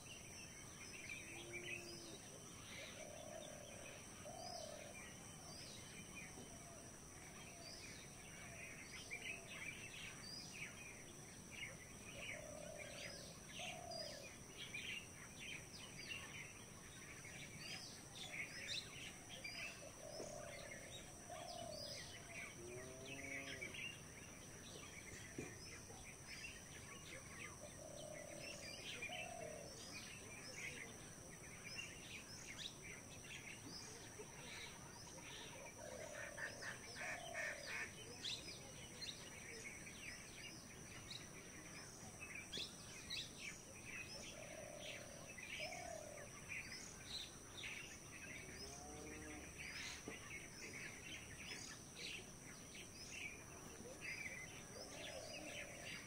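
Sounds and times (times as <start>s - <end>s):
birds chirping and calling: 11.7s - 56.0s.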